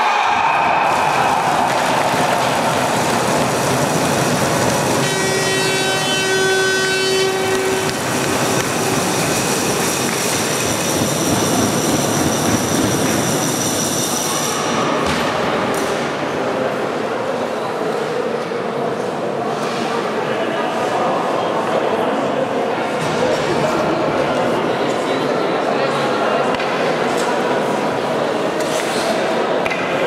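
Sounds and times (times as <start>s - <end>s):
crowd noise: 0.0s - 30.0s
horn blaring: 4.6s - 8.6s.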